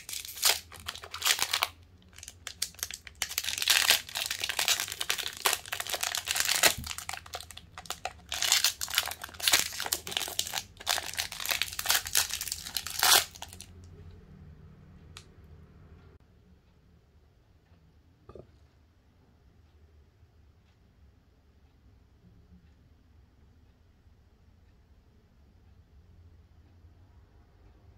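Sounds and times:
plastic wrapper crinkling: 0.0 - 13.7.

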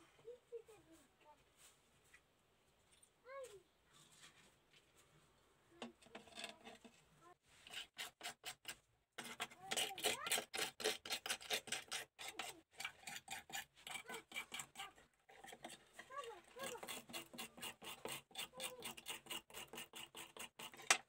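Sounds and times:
wire brush scrubbing metal: 7.5 - 21.0.

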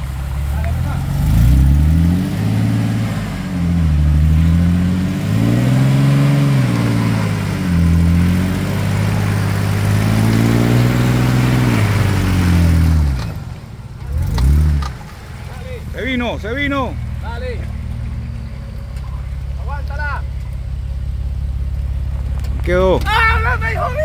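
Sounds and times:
truck engine revving hard: 0.0 - 18.7.

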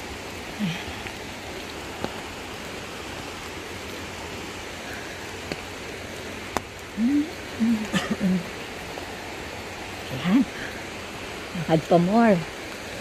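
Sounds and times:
rain on stone path: 0.0 - 13.0.

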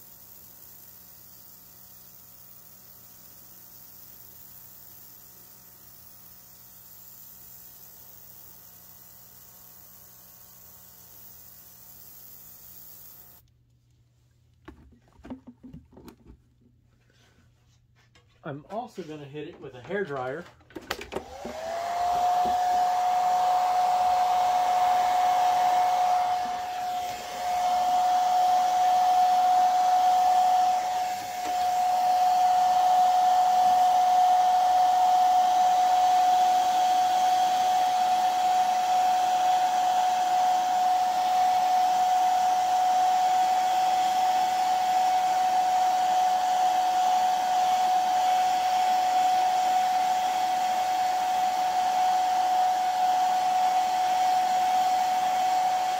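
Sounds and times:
hair dryer running: 0.0 - 13.4, 20.8 - 55.9.

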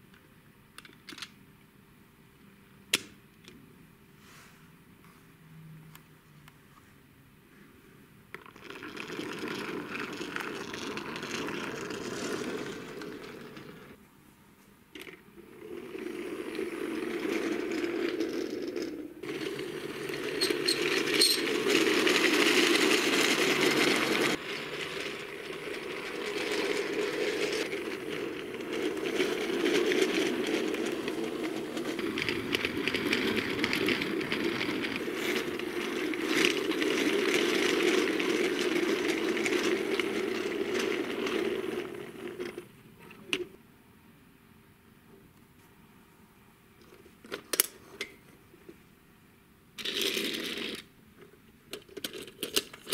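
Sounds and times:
toy wheels rolling on wood: 8.4 - 14.0, 15.0 - 42.8, 49.8 - 50.9, 51.7 - 52.9.

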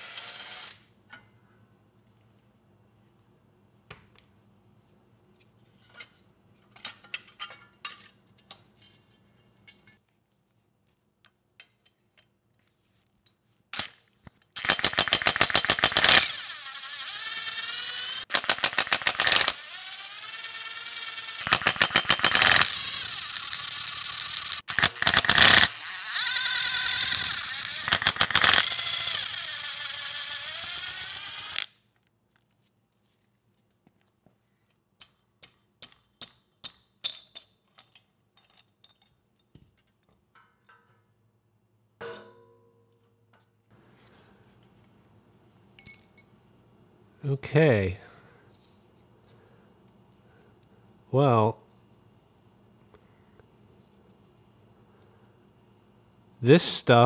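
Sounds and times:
impact driver motor whirring: 16.0 - 18.2, 19.3 - 21.5, 22.4 - 31.7.

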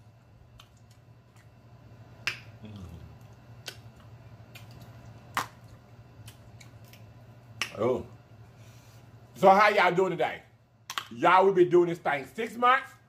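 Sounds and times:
mouth smacks while eating: 2.2 - 7.8.

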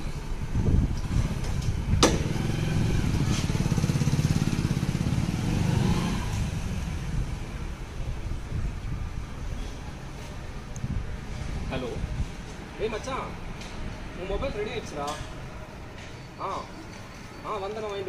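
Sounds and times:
motorcycle engine passing by: 0.6 - 7.6.

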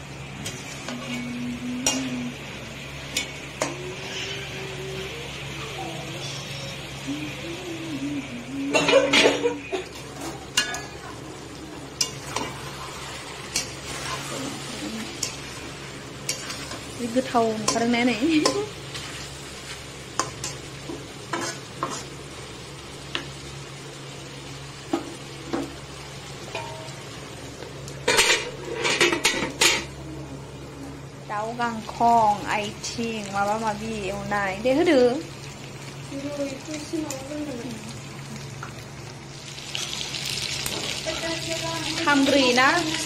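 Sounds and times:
chicken sizzling: 0.0 - 43.0
metal spatula scraping pan: 12.0 - 15.5, 28.1 - 29.9.

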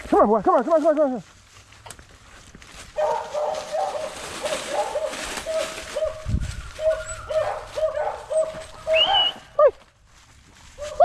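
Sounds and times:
rustling in dry leaves: 0.0 - 11.0
dog yipping: 3.0 - 9.4.

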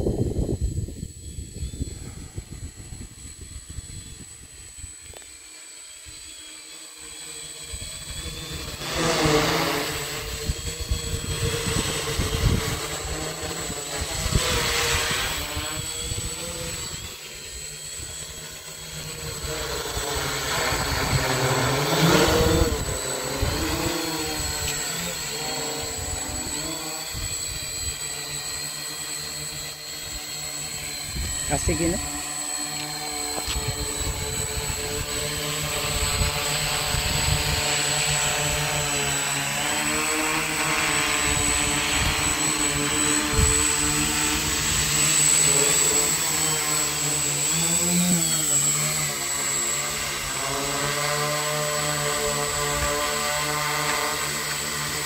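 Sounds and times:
drone propellers buzzing: 0.0 - 55.0.

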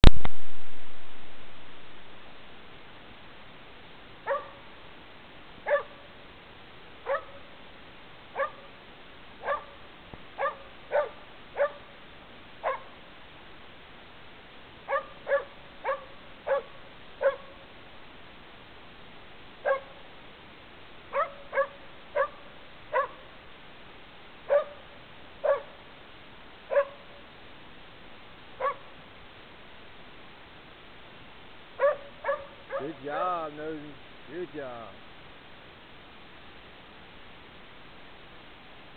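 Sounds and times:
dog barking: 4.2 - 4.7, 5.6 - 6.1, 7.0 - 7.5, 8.4 - 8.7, 9.4 - 9.8, 10.4 - 11.9, 12.6 - 13.0, 14.9 - 17.6, 19.6 - 20.0, 21.1 - 23.3, 24.5 - 25.8, 26.7 - 27.2, 28.6 - 28.9, 31.8 - 33.0.

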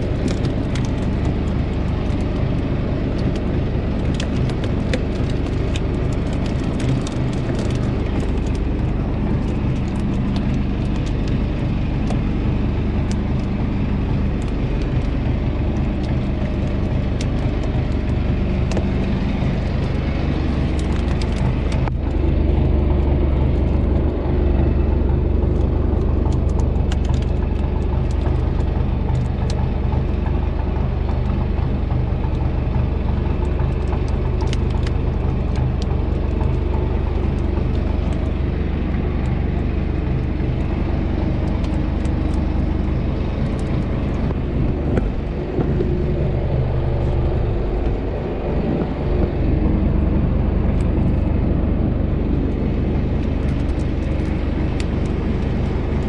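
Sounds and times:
boat engine running: 0.0 - 56.0.

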